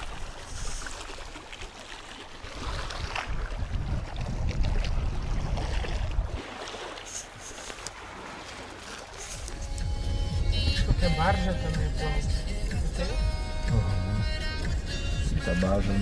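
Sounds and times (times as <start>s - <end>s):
wind buffeting microphone: 2.5s - 6.6s.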